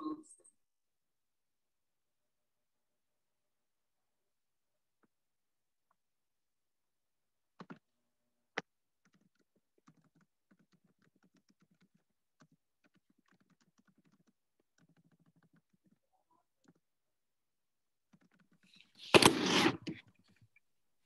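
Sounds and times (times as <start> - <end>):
faint keyboard typing: 8.5 - 16.9, 18.1 - 18.9.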